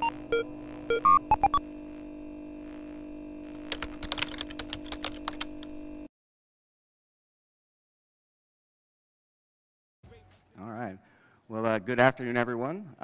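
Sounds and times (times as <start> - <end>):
short electronic beeps: 0.0 - 1.6
keyboard typing clicks: 3.7 - 5.8.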